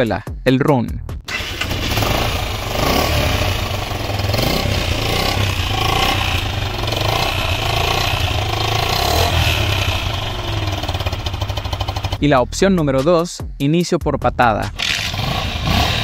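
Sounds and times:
motorcycle engine idling: 1.3s - 12.3s.

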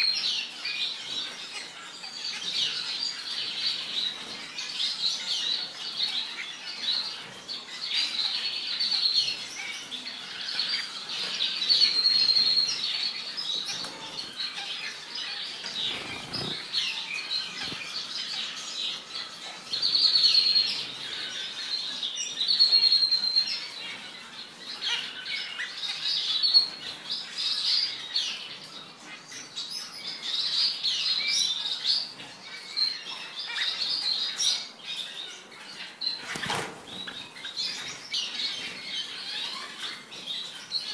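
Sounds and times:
finches chirping: 0.0s - 40.9s
wing flutters: 15.7s - 16.8s.

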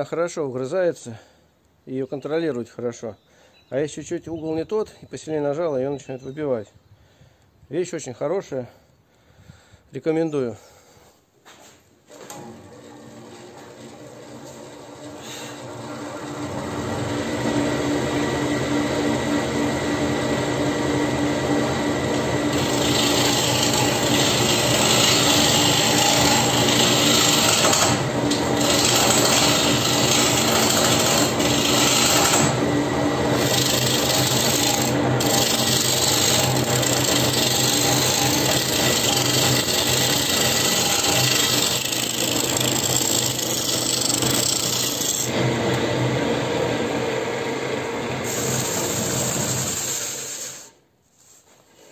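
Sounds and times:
wood lathe motor hum: 12.2s - 50.7s
cutting tool scraping wood: 22.5s - 32.7s, 33.3s - 45.4s.

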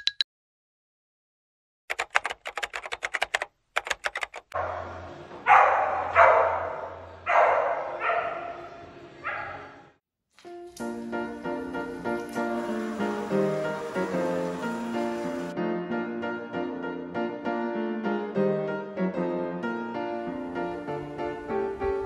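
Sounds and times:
typewriter key clicks: 1.9s - 4.5s
dog barking: 4.5s - 9.9s.

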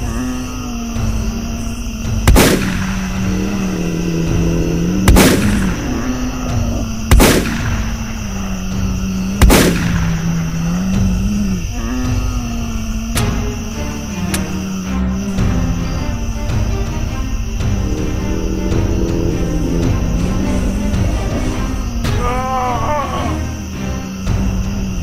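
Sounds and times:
gunshots with ringing tail: 2.3s - 3.2s, 5.0s - 5.8s, 7.1s - 8.1s, 9.4s - 10.2s
continuous low wavering tone: 15.2s - 22.1s.

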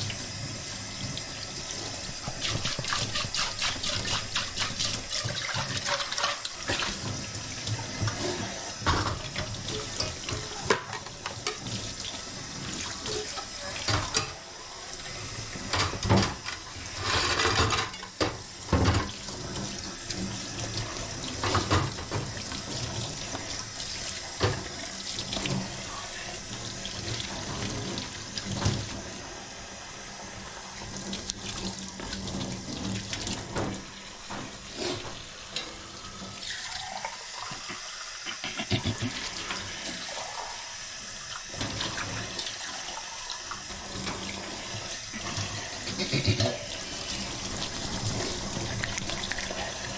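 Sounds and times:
tap running into sink: 1.0s - 11.9s, 15.6s - 23.7s, 24.3s - 25.8s, 30.9s - 40.1s
dishes knocking and clinking: 8.8s - 11.6s, 15.7s - 19.2s, 37.6s - 39.2s.

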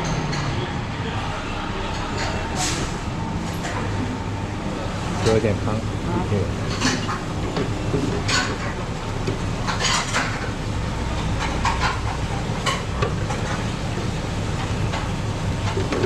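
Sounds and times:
steady low hum: 0.0s - 16.0s
ladle and tongs clinking on pot: 9.6s - 10.6s.

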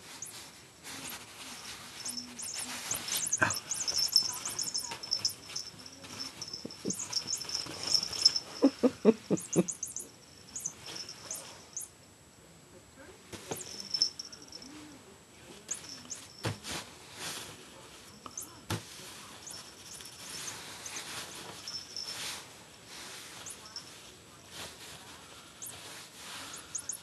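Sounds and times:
high chirping squeaks: 0.0s - 0.4s, 1.0s - 8.7s, 9.4s - 11.9s, 15.7s - 16.4s, 26.5s - 27.0s
bedding rustling: 0.0s - 11.8s, 13.4s - 14.8s, 15.4s - 27.0s.

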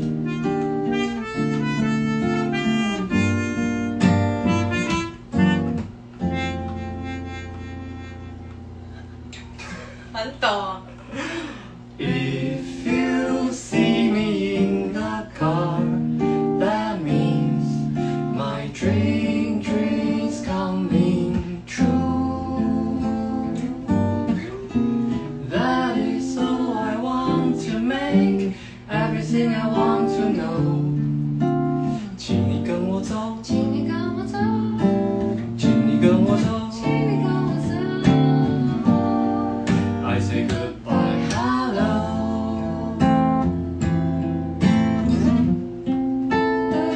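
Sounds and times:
acoustic guitar strumming: 0.0s - 10.3s, 11.2s - 46.9s
woman and man singing: 11.1s - 31.2s, 31.8s - 43.6s, 46.5s - 46.9s.

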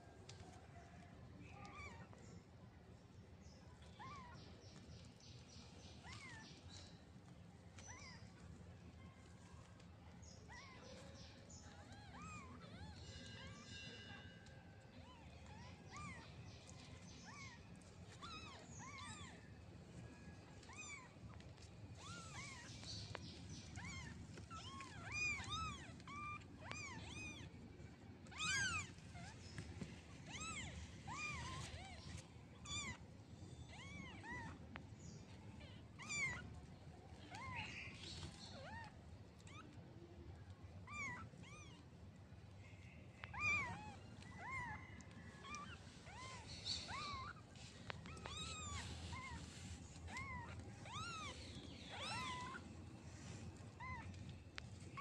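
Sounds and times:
kittens mewing: 21.9s - 27.5s, 28.2s - 29.4s, 30.2s - 33.0s, 35.6s - 36.6s, 40.8s - 41.8s, 43.2s - 52.8s, 53.5s - 55.0s.

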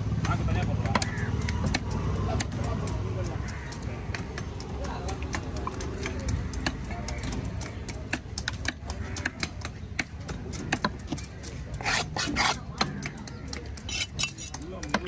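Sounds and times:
knife chopping on wooden block: 0.8s - 15.0s
blade scraping across block: 11.7s - 12.7s, 13.8s - 14.6s.

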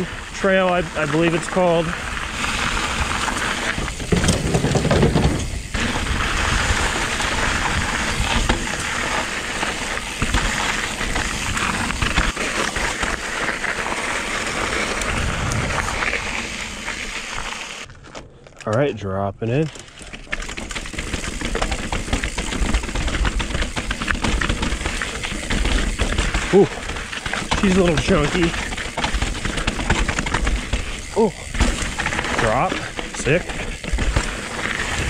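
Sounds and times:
tyre and wind rush: 0.0s - 17.8s
bike clicks and rattles: 0.0s - 35.0s.

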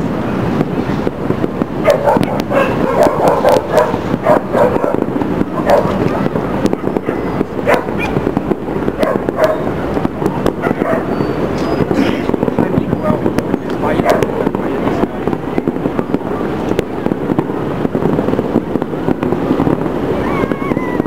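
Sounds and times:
distant fireworks popping and crackling: 0.0s - 21.0s
dog barking: 1.8s - 5.0s, 5.6s - 6.0s, 7.1s - 8.2s, 9.0s - 9.7s, 10.6s - 11.2s, 14.0s - 14.3s.

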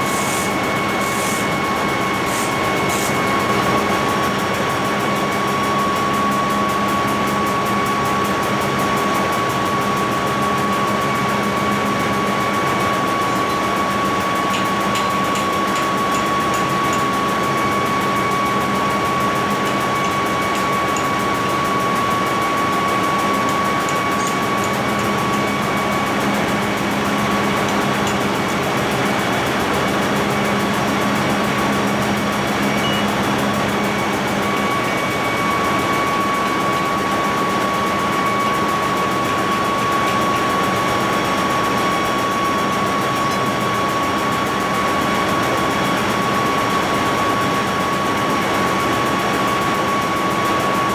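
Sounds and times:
engine room machinery drone: 0.0s - 50.9s
high whine: 10.2s - 44.1s.

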